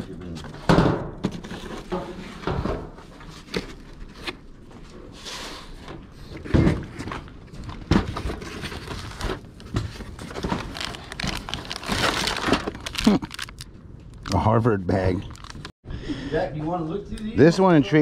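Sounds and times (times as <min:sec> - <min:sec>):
cardboard scraping and rustling: 0:00.2 - 0:13.0.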